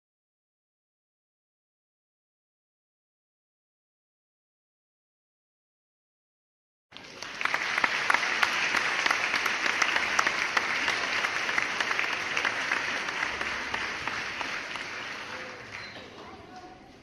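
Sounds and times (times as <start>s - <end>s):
crowd applauding: 6.9s - 16.6s.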